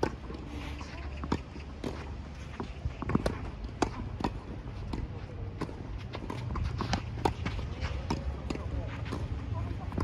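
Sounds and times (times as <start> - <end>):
quick footsteps on court: 0.0 - 10.0
tennis ball bouncing: 0.0 - 10.0
racket hitting tennis ball: 1.2 - 10.0.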